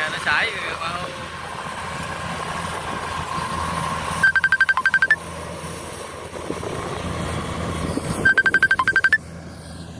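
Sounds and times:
combine harvester engine running: 0:00.0 - 0:09.9
electronic beeping tune: 0:04.2 - 0:05.2, 0:08.2 - 0:09.2.

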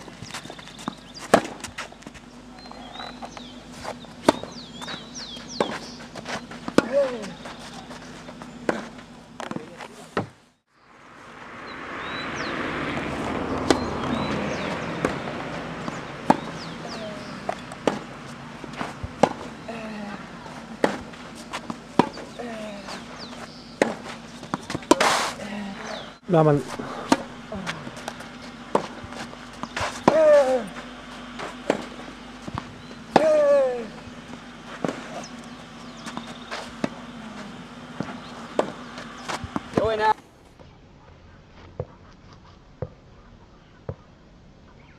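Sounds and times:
tennis ball struck by rackets: 0:00.3 - 0:01.8, 0:04.2 - 0:07.9, 0:13.0 - 0:19.6, 0:20.3 - 0:26.0, 0:26.7 - 0:40.0
bird chirps: 0:02.5 - 0:06.5, 0:11.6 - 0:12.6, 0:43.0 - 0:44.9
player shouting: 0:30.1 - 0:30.8, 0:33.1 - 0:34.0.

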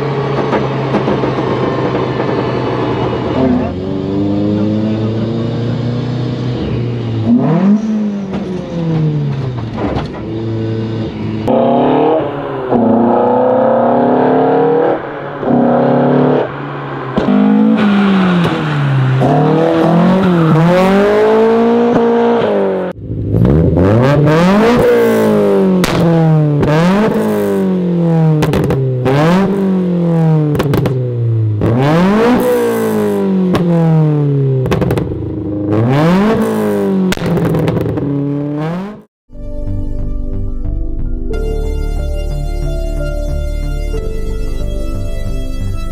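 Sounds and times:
car engine revving: 0:00.0 - 0:39.1
exhaust cracks: 0:11.4 - 0:27.6, 0:30.4 - 0:33.9, 0:34.6 - 0:38.4.

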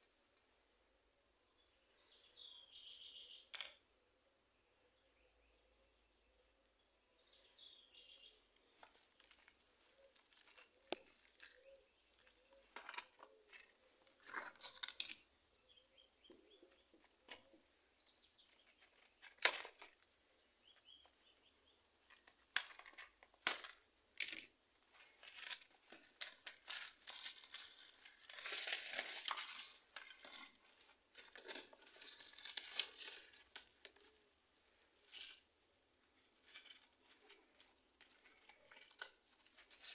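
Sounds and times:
paper crinkling and tearing: 0:25.0 - 0:33.6.

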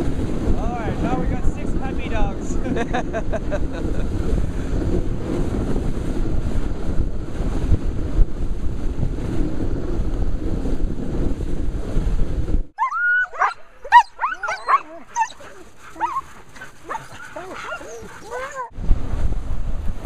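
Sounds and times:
wind buffeting microphone: 0:00.0 - 0:20.0
dog whining and yipping: 0:12.8 - 0:18.7.

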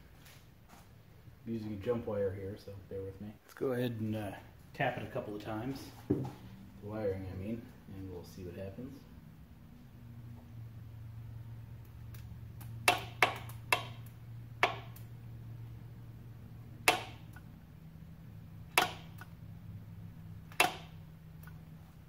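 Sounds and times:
sharp electrical clicks: 0:11.7 - 0:15.8, 0:16.7 - 0:17.6, 0:18.6 - 0:19.4, 0:20.4 - 0:21.7.

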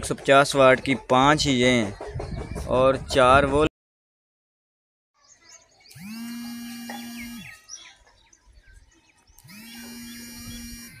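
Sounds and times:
birds chirping: 0:00.0 - 0:03.7, 0:05.2 - 0:11.0
small electric motor whine: 0:05.9 - 0:07.6, 0:09.4 - 0:11.0.

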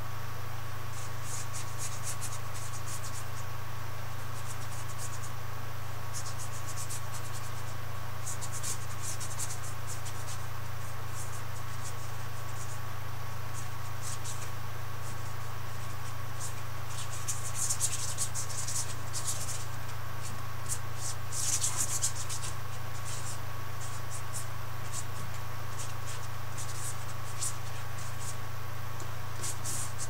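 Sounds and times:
steady low hum: 0:00.0 - 0:30.0
paintbrush scratching on canvas: 0:13.6 - 0:28.4, 0:29.4 - 0:30.0.

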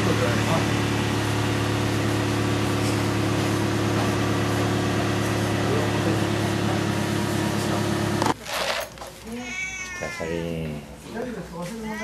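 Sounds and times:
machine humming: 0:00.0 - 0:08.4.

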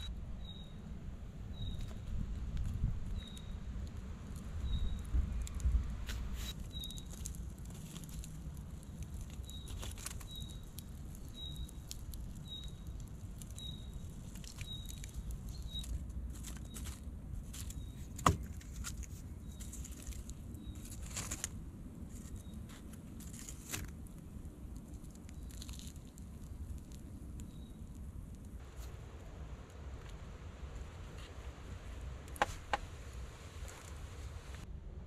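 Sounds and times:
embers crackling: 0:00.0 - 0:34.7.

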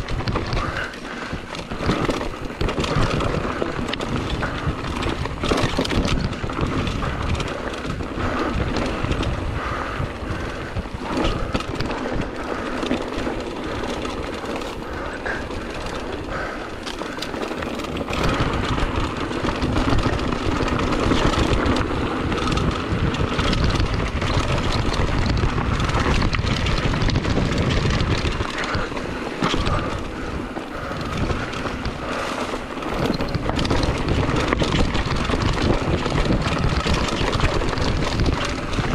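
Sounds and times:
bike chain and frame rattling: 0:00.0 - 0:38.9
tyres crunching over gravel: 0:10.4 - 0:38.9
wind on microphone: 0:17.5 - 0:38.9.

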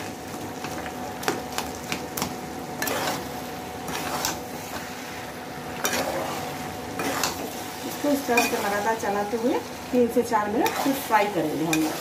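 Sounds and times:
faint sizzle: 0:00.0 - 0:12.0
spatula knocking and scraping pan: 0:10.6 - 0:12.0.

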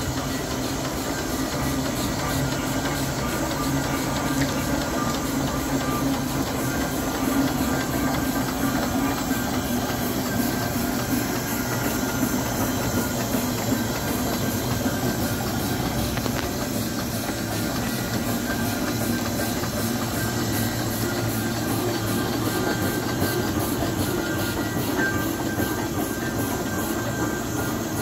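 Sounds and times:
rumble of rail wheels: 0:00.0 - 0:28.0
steam hissing: 0:00.0 - 0:28.0.

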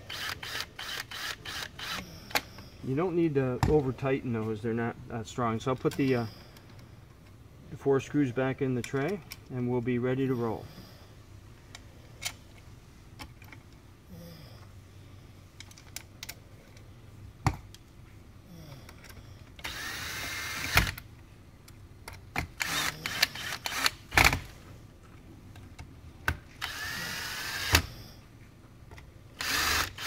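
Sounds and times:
cordless drill motor whine: 0:00.1 - 0:02.0, 0:19.6 - 0:21.0, 0:22.6 - 0:24.0, 0:26.6 - 0:27.9, 0:29.4 - 0:30.0.

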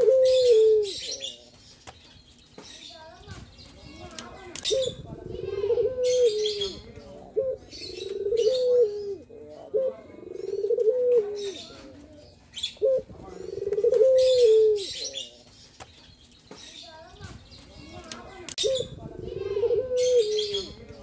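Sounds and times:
dove cooing: 0:00.0 - 0:01.4, 0:04.6 - 0:15.2, 0:18.6 - 0:21.0
small birds chirping: 0:00.0 - 0:21.0.

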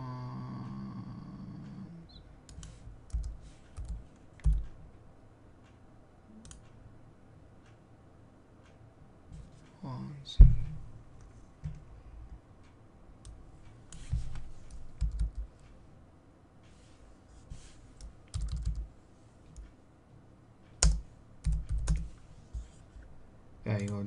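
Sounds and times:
computer keyboard typing: 0:02.5 - 0:04.8, 0:13.9 - 0:15.6, 0:18.0 - 0:18.9, 0:20.8 - 0:22.2, 0:23.7 - 0:24.0.

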